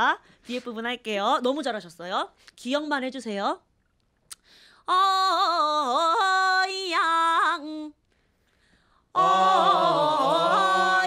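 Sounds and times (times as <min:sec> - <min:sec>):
lower sung voice: 0:09.2 - 0:11.0.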